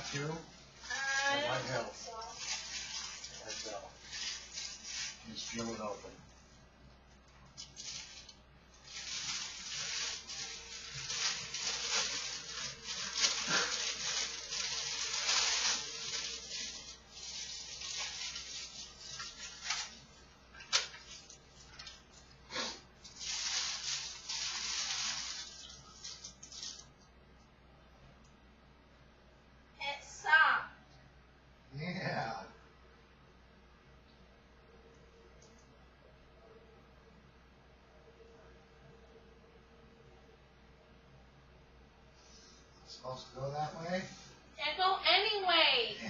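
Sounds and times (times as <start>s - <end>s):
plastic bag crinkling: 0.0s - 6.0s, 7.5s - 27.0s.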